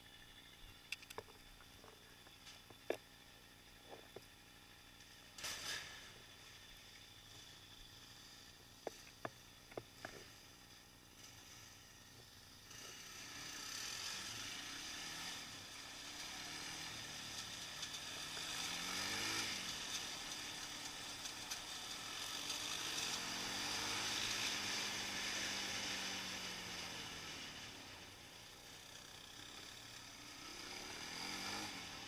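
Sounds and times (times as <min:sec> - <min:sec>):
quad engine revving: 0:12.6 - 0:32.0.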